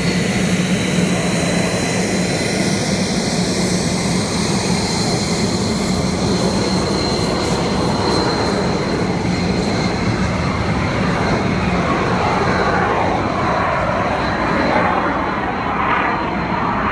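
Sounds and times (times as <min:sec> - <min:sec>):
fighter jet flying overhead: 0:00.0 - 0:16.9.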